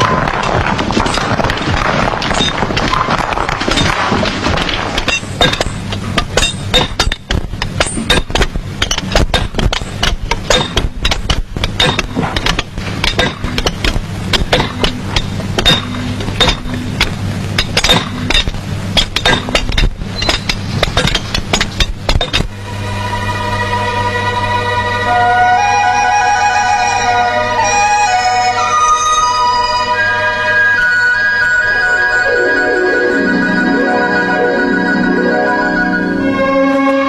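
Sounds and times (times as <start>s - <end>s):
hand tools clinking on rock: 0.0s - 22.5s
steady low hum: 0.0s - 37.0s.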